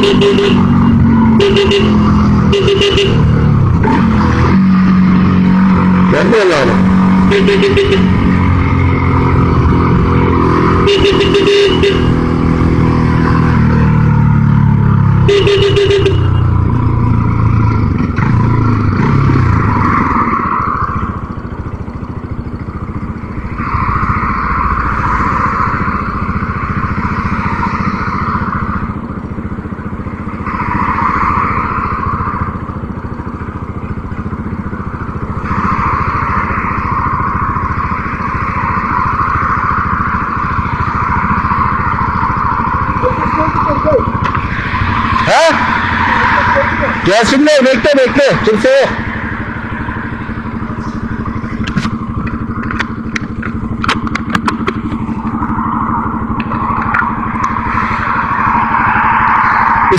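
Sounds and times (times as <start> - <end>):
motorcycle engine rumble: 0.0 - 59.9.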